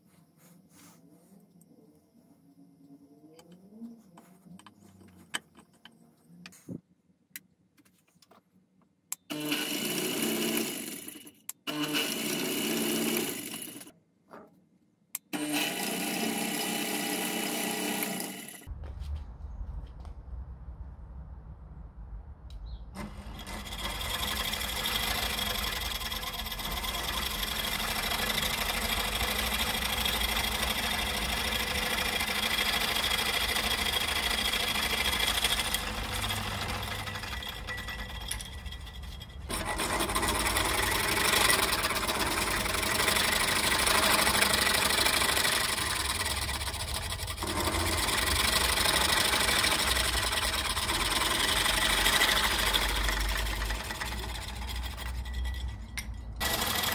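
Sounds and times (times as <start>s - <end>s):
motorized fret saw running: 9.3s - 13.9s, 15.4s - 18.7s, 23.0s - 56.9s.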